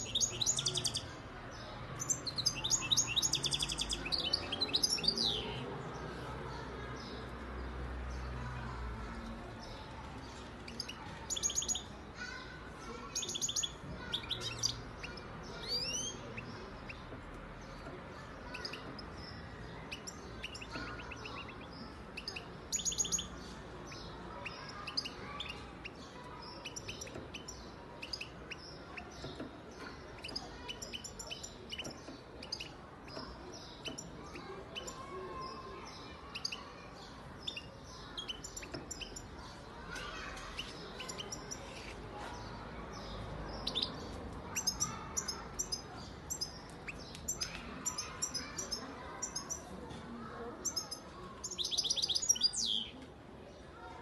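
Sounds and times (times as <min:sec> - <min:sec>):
goldfinch singing: 0:02.0 - 0:05.5.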